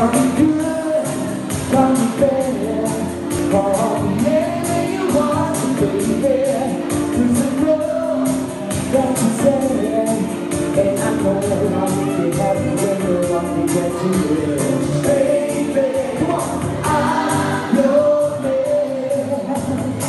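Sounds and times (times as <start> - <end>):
man singing into a microphone: 0.0 - 20.0
pop backing track: 0.0 - 20.0.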